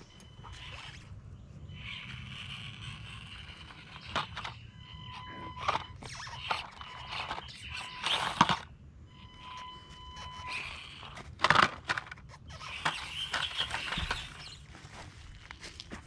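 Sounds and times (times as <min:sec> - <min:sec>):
toy truck scraping over rocks: 0:00.3 - 0:08.7, 0:09.3 - 0:16.0
toy truck tipping clatter: 0:01.8 - 0:08.7, 0:10.1 - 0:14.9
tyres crunching dry leaves: 0:13.6 - 0:16.0.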